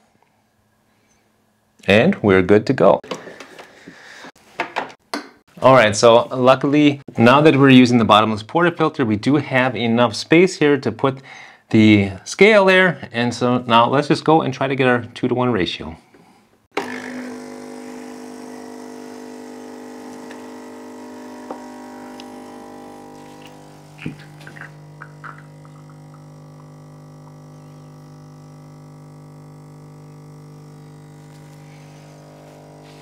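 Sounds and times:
espresso pump humming: 0:16.8 - 0:33.0.

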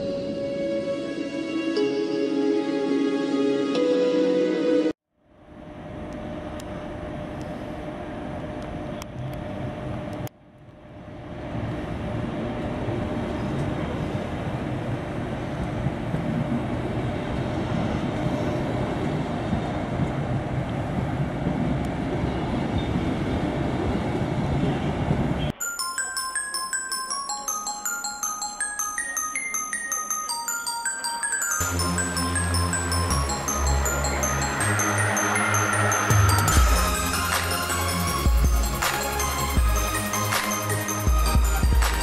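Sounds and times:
train coaches rolling: 0:28.8 - 0:42.0.

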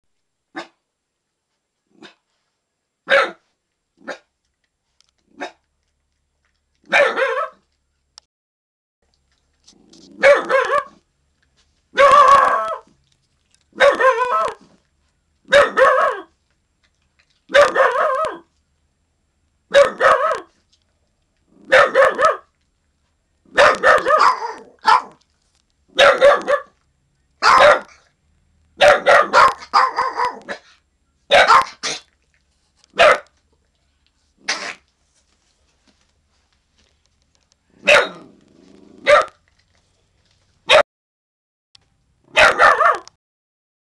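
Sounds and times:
small dog barking: 0:00.5 - 0:00.8, 0:03.0 - 0:04.3, 0:05.3 - 0:05.6, 0:06.9 - 0:07.7, 0:10.1 - 0:11.0, 0:11.9 - 0:12.9, 0:13.7 - 0:14.7, 0:15.4 - 0:16.3, 0:17.5 - 0:18.5, 0:19.7 - 0:20.5, 0:21.6 - 0:22.5, 0:23.5 - 0:25.2, 0:25.9 - 0:26.8, 0:27.4 - 0:28.1, 0:28.8 - 0:30.7, 0:31.3 - 0:32.1, 0:32.9 - 0:33.4, 0:37.8 - 0:38.3, 0:39.0 - 0:39.4, 0:40.6 - 0:40.8, 0:42.3 - 0:43.2.

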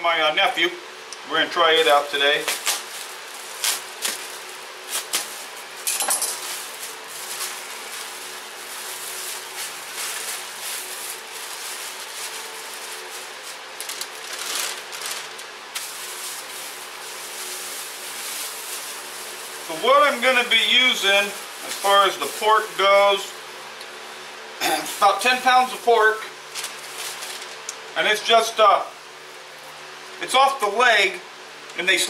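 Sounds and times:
plastic bag crinkling: 0:01.7 - 0:23.3, 0:24.7 - 0:27.9.

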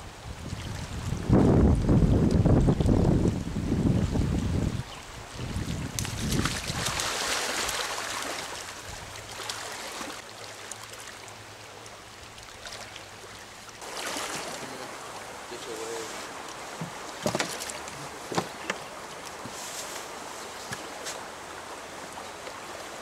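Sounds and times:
wind buffeting microphone: 0:00.0 - 0:07.1
stream running over stones: 0:00.0 - 0:23.0.

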